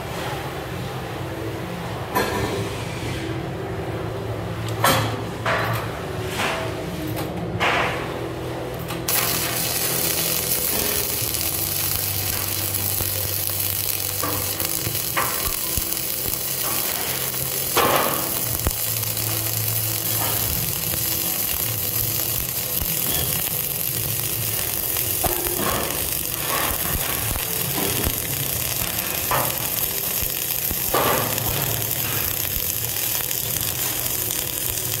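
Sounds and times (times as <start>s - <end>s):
welding arc sizzling: 8.7s - 35.0s
welding pops: 9.1s - 35.0s.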